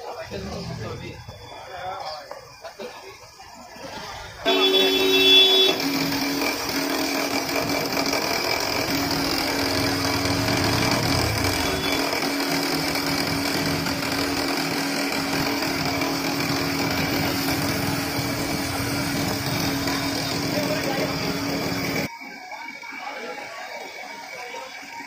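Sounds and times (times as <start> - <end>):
electric motor hum: 4.5 - 22.1.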